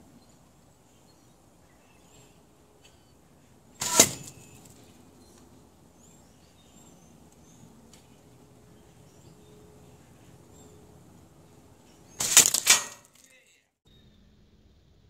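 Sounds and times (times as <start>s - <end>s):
arrow whoosh and smack: 3.8s - 4.3s.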